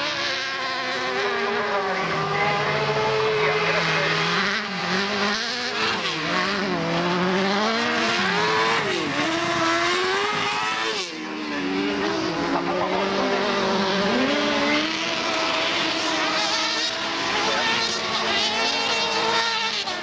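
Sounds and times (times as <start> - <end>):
racing buggy engines revving: 0.0 - 20.0.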